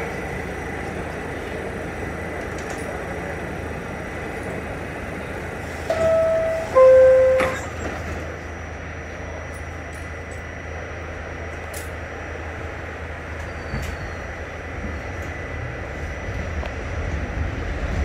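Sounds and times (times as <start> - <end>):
train hum: 0.0 - 18.0
two-tone descending door chime: 5.9 - 7.8.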